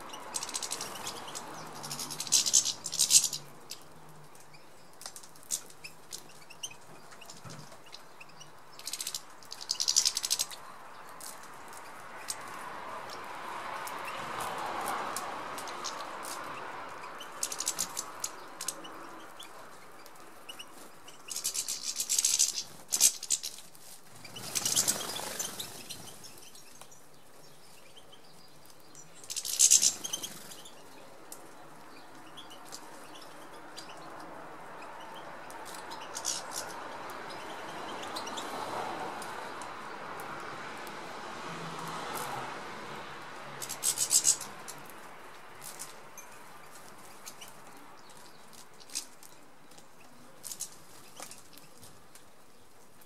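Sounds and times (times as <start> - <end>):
birds twittering: 0.0 - 14.6, 15.2 - 40.6, 43.6 - 53.0
wing flutters: 21.3 - 26.4.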